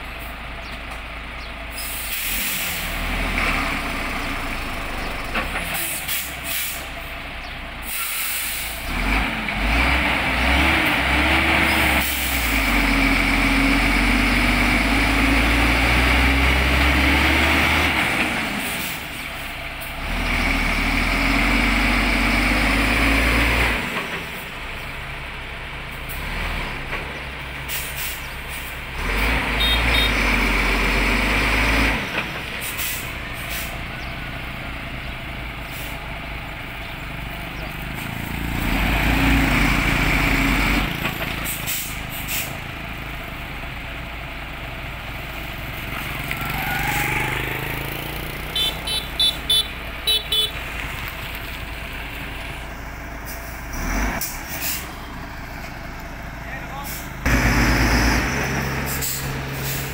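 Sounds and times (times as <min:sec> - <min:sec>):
truck engine revving: 0:01.0 - 0:07.1, 0:07.8 - 0:59.9
air hissing: 0:07.8 - 0:08.8.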